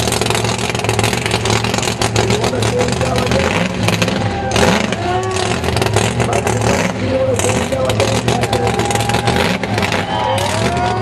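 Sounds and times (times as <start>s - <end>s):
loud car engine at high revs: 0.0s - 11.0s
spinning tyres: 0.0s - 11.0s.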